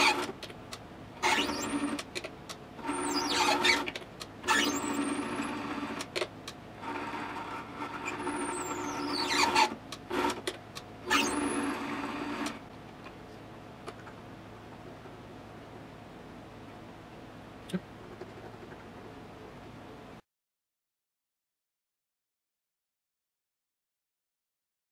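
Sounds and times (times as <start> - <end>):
high squeals of cutting tool: 2.8 - 3.8, 8.0 - 9.7, 11.1 - 11.8.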